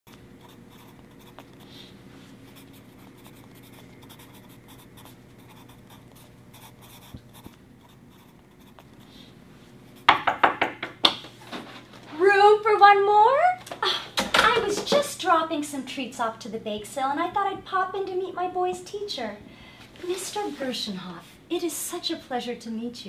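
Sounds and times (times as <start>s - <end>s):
faint room hum: 0.1s - 23.0s
pencil scratching on paper: 0.4s - 9.3s
loud sharp knocks: 10.1s - 11.2s.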